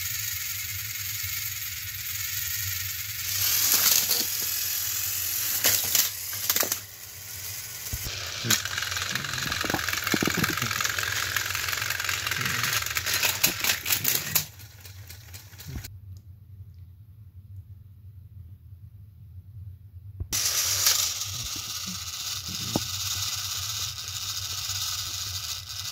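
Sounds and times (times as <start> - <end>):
toy train engines whirring: 0.0 - 15.9, 20.4 - 25.9.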